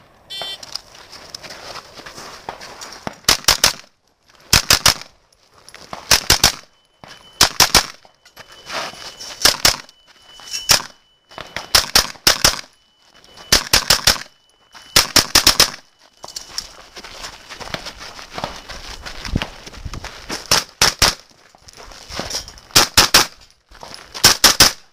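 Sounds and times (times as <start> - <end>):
carbine gunshots: 6.1 - 6.7, 7.4 - 8.0, 11.7 - 12.7, 15.0 - 15.8, 22.8 - 23.4.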